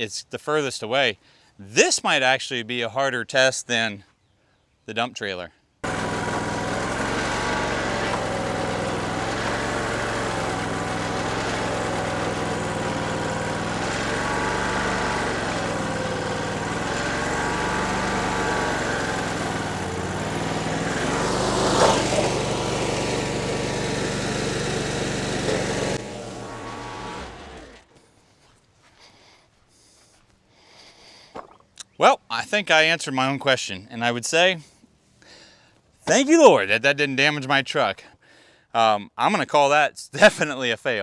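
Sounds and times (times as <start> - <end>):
engine running under hydraulic load: 5.8 - 28.0.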